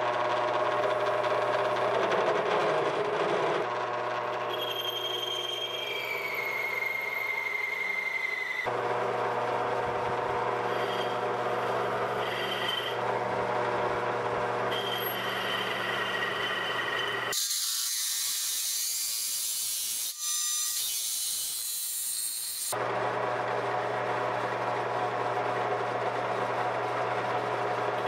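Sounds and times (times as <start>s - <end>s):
milling machine motor hum: 0.0s - 17.4s
high cutting whine: 0.4s - 17.5s.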